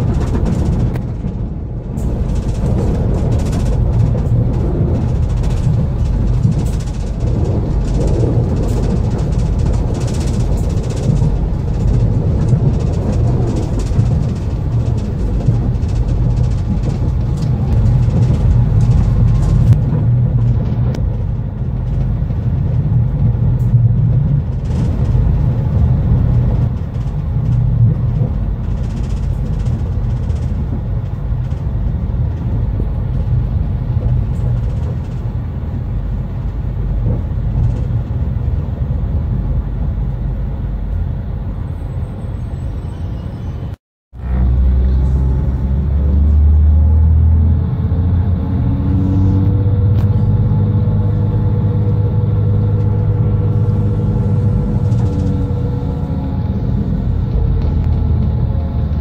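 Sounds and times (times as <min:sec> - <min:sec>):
wheel-on-rail clicks: 0:00.0 - 0:38.6, 0:52.1 - 0:59.0
train engine hum: 0:00.0 - 0:59.0
train rumbling inside carriage: 0:00.0 - 0:59.0.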